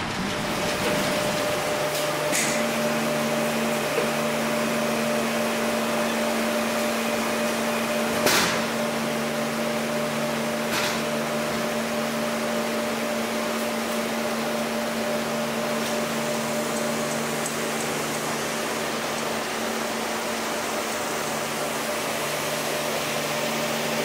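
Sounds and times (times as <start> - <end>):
machinery clunk: 0.0 - 2.8
mill machinery humming: 0.0 - 24.0.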